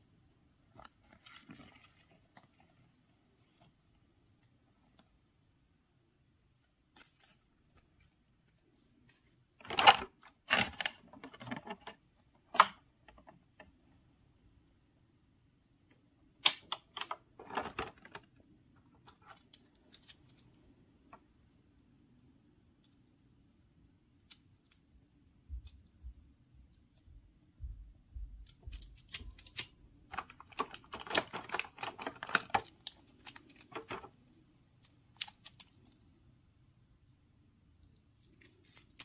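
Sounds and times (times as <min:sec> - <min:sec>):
paper and plastic rustling: 0:00.7 - 0:03.7, 0:06.6 - 0:12.0, 0:17.4 - 0:20.6, 0:28.6 - 0:34.2.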